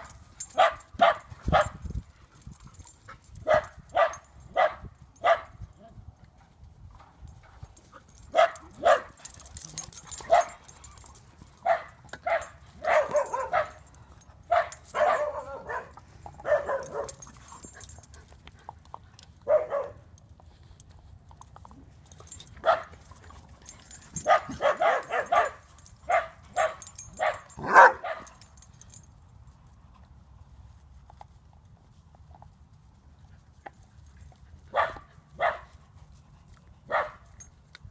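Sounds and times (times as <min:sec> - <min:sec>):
dogs barking: 0:00.0 - 0:01.8, 0:03.4 - 0:05.6, 0:08.3 - 0:11.0, 0:11.6 - 0:17.9, 0:19.4 - 0:20.0, 0:22.6 - 0:22.9, 0:23.9 - 0:28.5, 0:34.7 - 0:35.7, 0:36.9 - 0:37.2.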